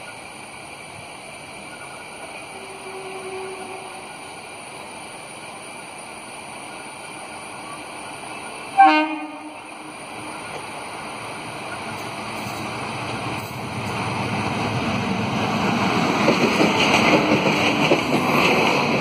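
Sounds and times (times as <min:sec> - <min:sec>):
steady background hiss: 0:00.0 - 0:16.3
electric locomotive horn blast: 0:02.5 - 0:04.2, 0:08.8 - 0:09.9.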